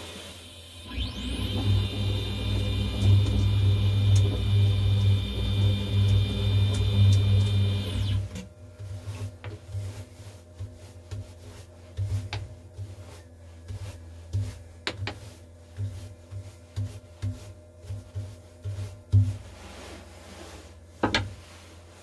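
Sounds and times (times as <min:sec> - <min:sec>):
low steady hum: 0:00.4 - 0:20.4
motor whirr: 0:00.7 - 0:08.4
brush sweeping metal chips: 0:08.8 - 0:22.0.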